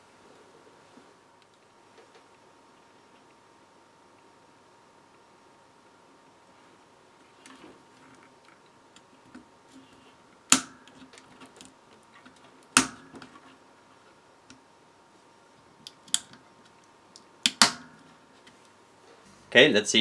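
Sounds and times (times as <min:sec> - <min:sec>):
sharp plastic clicks: 0:15.8 - 0:18.0.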